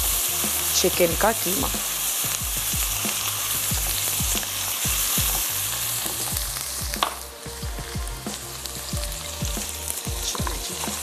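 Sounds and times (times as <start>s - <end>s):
oil sizzling with frying potatoes: 0.0s - 11.0s.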